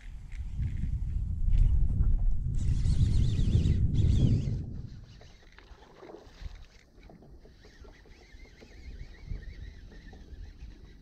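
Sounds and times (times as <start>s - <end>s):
wind rumbling on microphone: 0.0s - 11.0s
high fluttering whir: 2.5s - 11.0s.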